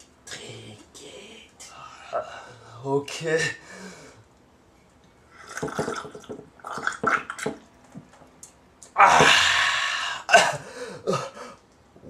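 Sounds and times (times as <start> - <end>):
mouth slurps and gulps: 5.4 - 7.6.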